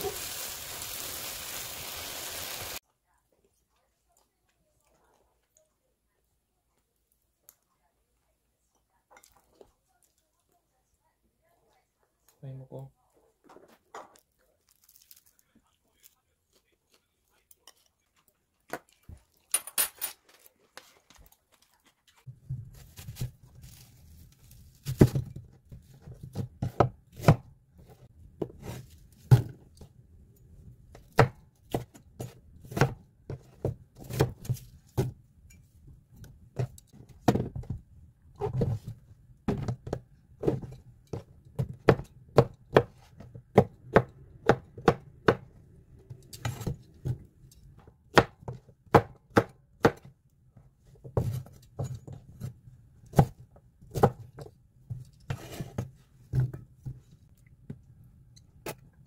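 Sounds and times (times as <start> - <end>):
knife chopping on wooden board: 39.5 - 45.5, 48.1 - 50.1.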